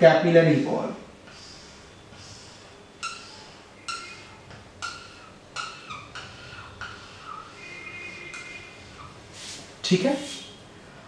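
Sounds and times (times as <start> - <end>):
marker squeaking on whiteboard: 1.3 - 9.5.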